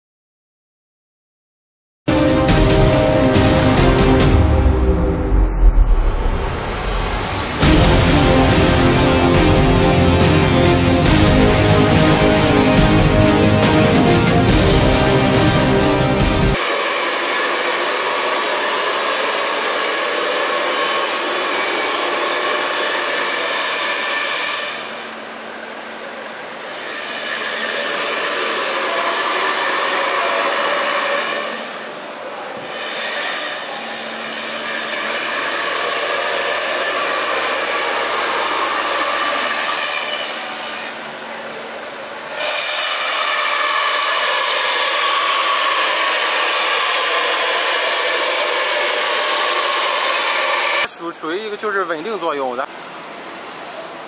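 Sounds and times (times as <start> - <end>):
router spindle milling foam: 16.6 - 50.9.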